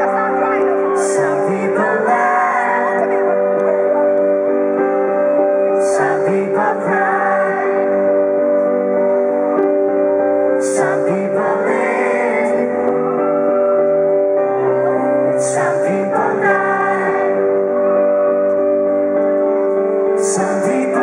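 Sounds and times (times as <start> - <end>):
man singing pop ballad: 0.0 - 4.5, 5.7 - 8.8, 10.5 - 13.4, 14.5 - 18.1, 20.1 - 21.0
sustained keyboard chords: 0.0 - 21.0.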